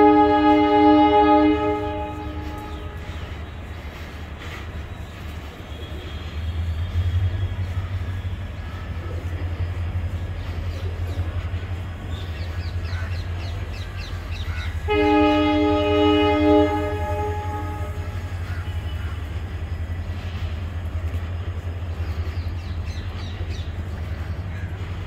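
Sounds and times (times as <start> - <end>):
loud train horn: 0.0 - 3.4, 14.7 - 19.5
train coaches rumbling past: 0.0 - 25.0.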